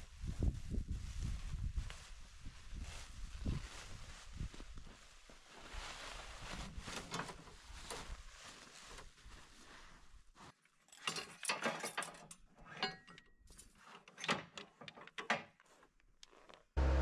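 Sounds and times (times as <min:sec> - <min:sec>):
metal clanks and rattles: 0:10.9 - 0:15.6.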